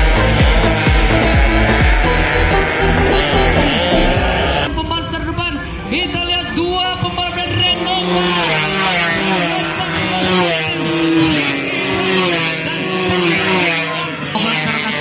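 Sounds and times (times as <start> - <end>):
two-stroke motorcycles revving past: 0.0 - 4.7, 7.5 - 15.0.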